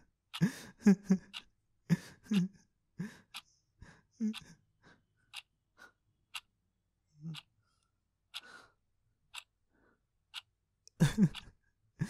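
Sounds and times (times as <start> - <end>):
clock ticking: 0.0 - 2.5, 3.1 - 3.4, 4.3 - 4.5, 5.3 - 5.5, 7.3 - 7.5, 8.3 - 8.6, 9.3 - 9.6, 10.3 - 11.6.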